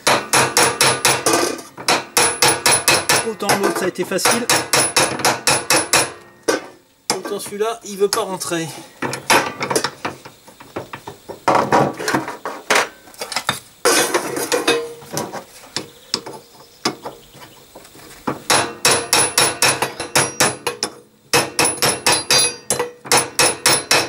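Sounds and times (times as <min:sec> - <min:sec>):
hammer striking metal: 0:00.0 - 0:07.2, 0:18.5 - 0:24.0.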